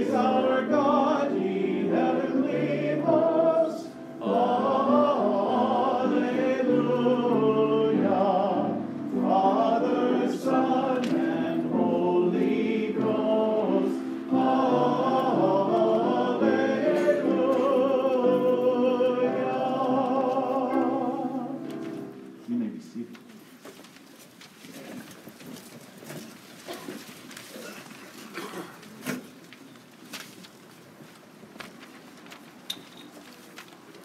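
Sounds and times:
group singing a hymn: 0:00.0 - 0:22.2.

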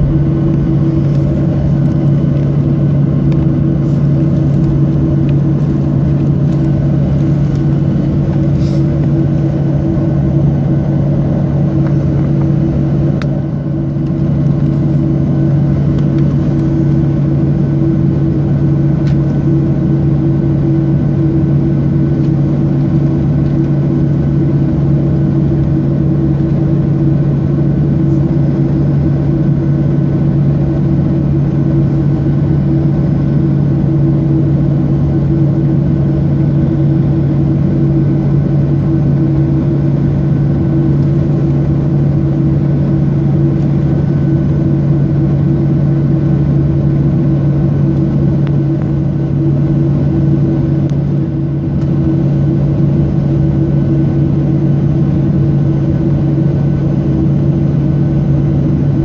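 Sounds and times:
jet engine cabin hum: 0:00.0 - 0:59.0.

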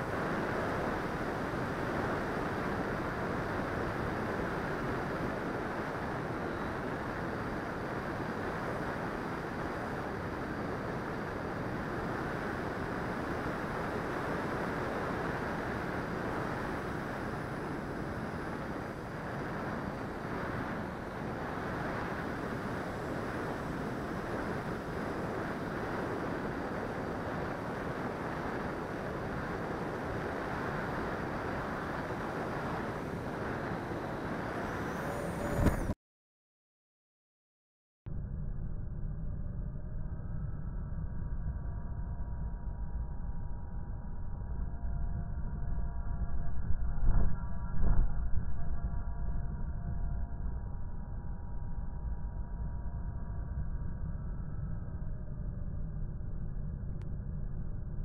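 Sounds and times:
faint high whine: 0:00.0 - 0:36.0, 0:38.1 - 0:58.0
wind rushing over microphone: 0:00.0 - 0:36.0.

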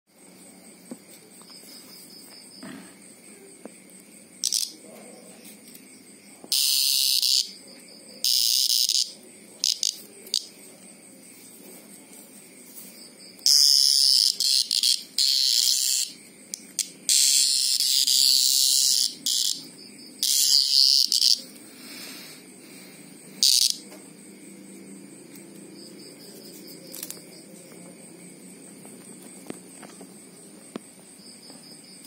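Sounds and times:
cicada buzzing distress calls: 0:04.4 - 0:04.8, 0:05.9 - 0:10.6, 0:13.2 - 0:27.8.

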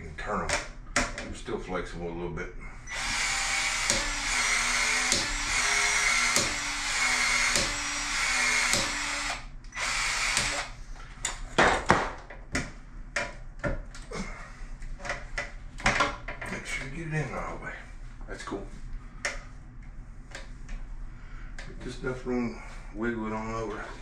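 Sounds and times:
power tool running under load: 0:02.9 - 0:10.8
clicks and knocks on pipes: 0:11.2 - 0:14.0.

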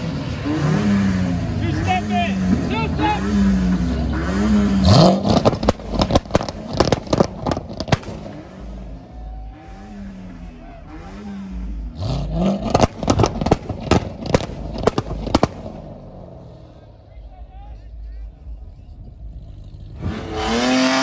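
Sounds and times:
car engine revving: 0:00.0 - 0:21.0
exhaust pops and crackles: 0:01.6 - 0:17.0.

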